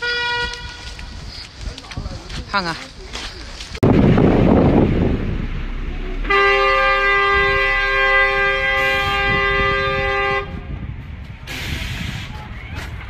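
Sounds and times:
vehicle horn blast: 0.0 - 1.0, 6.2 - 10.7
street traffic: 0.0 - 13.0.

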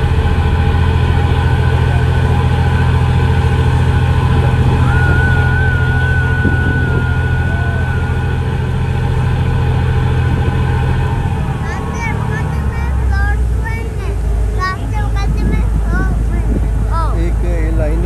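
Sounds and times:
low engine drone: 0.0 - 18.0.

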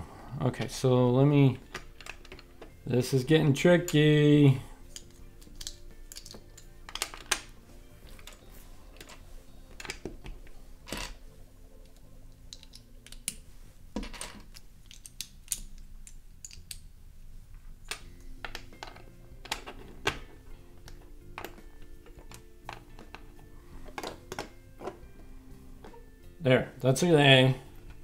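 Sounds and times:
plastic bricks clicking: 4.9 - 7.5, 11.8 - 13.4, 14.0 - 16.8.

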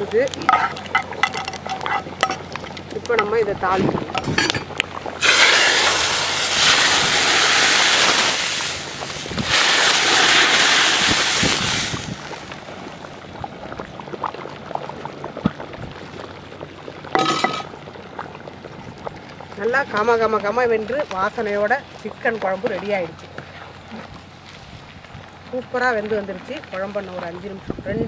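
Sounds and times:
hot oil sizzling in a pot: 0.0 - 13.2
faint crackles: 0.0 - 27.7.

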